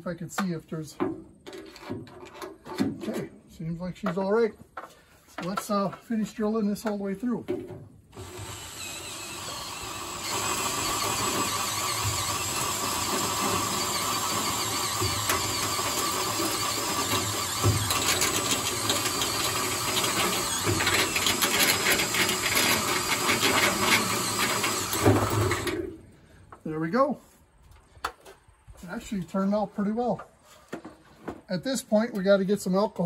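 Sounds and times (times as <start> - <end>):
drill cutting sheet metal: 8.2 - 25.9.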